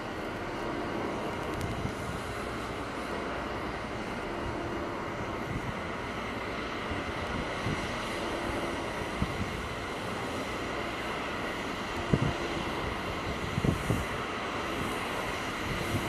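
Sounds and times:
low mechanical drone: 0:00.0 - 0:16.0
wind noise on microphone: 0:00.8 - 0:02.7, 0:04.3 - 0:10.0, 0:11.8 - 0:16.0.

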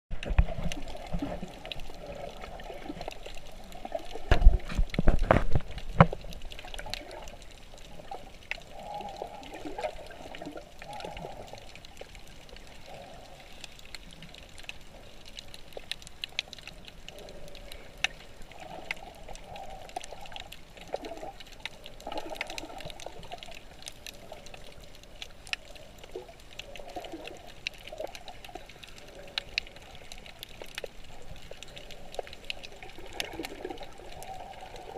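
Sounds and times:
underwater gurgling and bubbling: 0:00.1 - 0:34.9
heavy thumps underwater: 0:04.3 - 0:06.2.

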